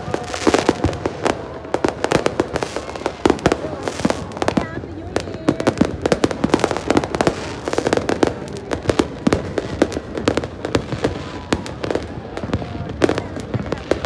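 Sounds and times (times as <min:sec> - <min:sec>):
fireworks bangs and crackles: 0:00.0 - 0:14.0.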